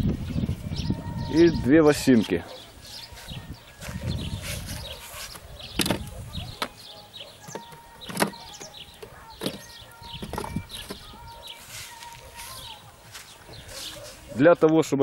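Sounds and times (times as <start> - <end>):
wooden frames knocking on wood: 5.7 - 6.8, 7.5 - 11.1.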